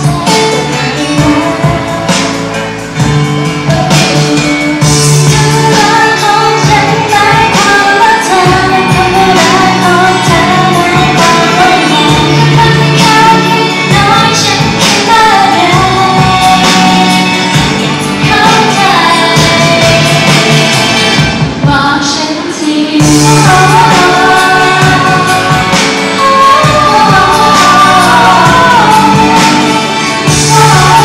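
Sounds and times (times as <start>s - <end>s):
woman singing into microphone: 0.0s - 2.7s, 3.6s - 31.0s
pop backing track: 0.0s - 31.0s.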